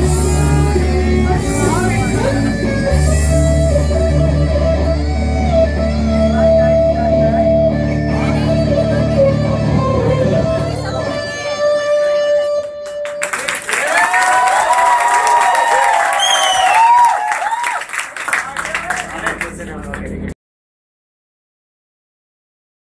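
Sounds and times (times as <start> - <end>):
sustained low bass: 0.0 - 11.6, 18.4 - 20.4
electric guitar playing: 0.0 - 13.6
audience applause: 12.8 - 20.1.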